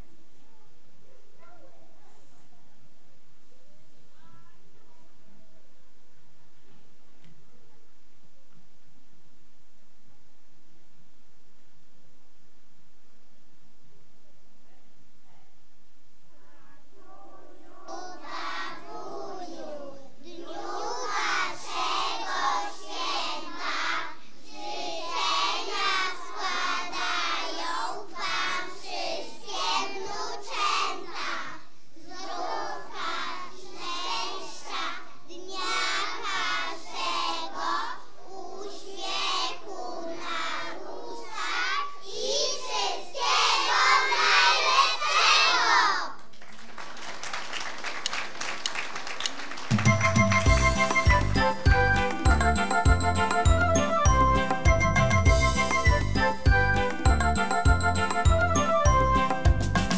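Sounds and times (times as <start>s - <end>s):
children singing together: 17.0s - 46.2s
audience clapping: 46.2s - 52.2s
music with tinkling tones and bass: 49.9s - 59.9s.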